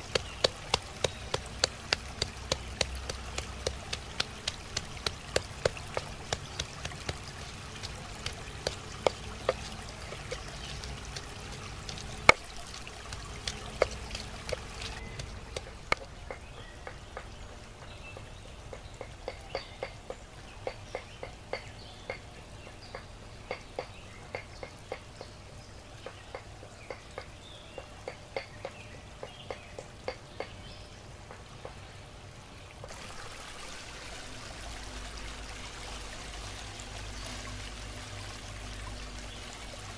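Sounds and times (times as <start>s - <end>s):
pestle pounding in stone mortar: 0.0s - 16.4s.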